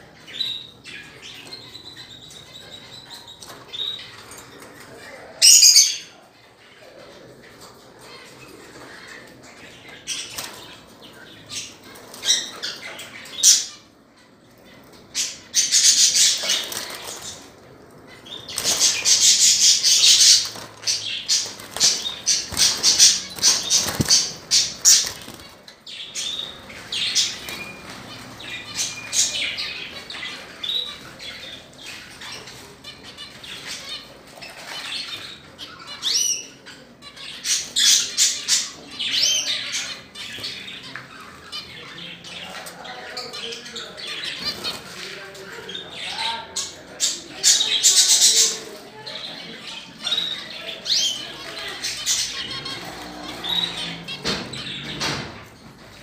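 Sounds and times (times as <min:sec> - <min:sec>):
budgerigars chattering and warbling: 0:14.9 - 0:56.0.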